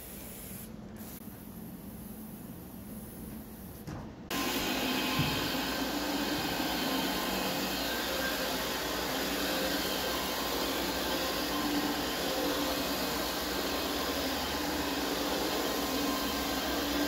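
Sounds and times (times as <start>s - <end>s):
carpet machine running: 4.3s - 17.0s.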